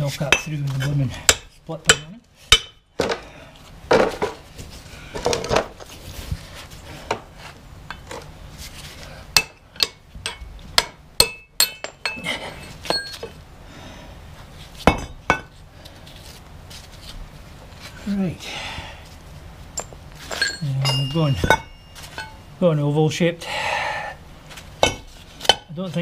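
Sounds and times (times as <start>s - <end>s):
hammer striking steel: 1.3s - 2.8s, 9.4s - 12.2s, 20.4s - 22.4s.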